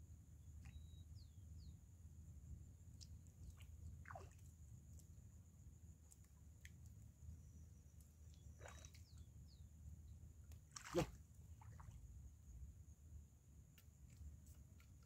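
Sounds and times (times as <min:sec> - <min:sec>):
feet sloshing in shallow water: 0:03.4 - 0:04.6, 0:08.4 - 0:09.1, 0:10.6 - 0:12.0
sharp water splash: 0:10.7 - 0:11.1.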